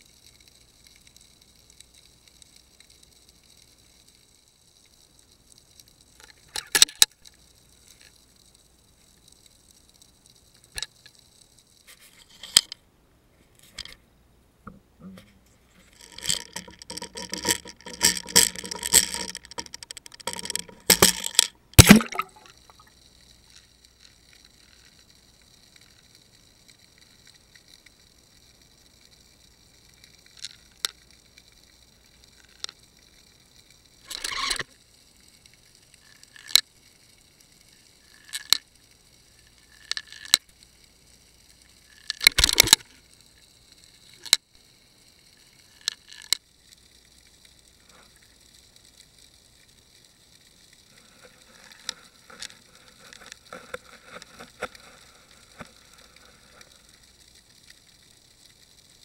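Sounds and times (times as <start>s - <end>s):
faint crackling: 0.0s - 59.0s
steady high hiss: 0.0s - 59.0s
fish biting bait underwater clicks: 16.2s - 22.5s, 42.3s - 42.8s.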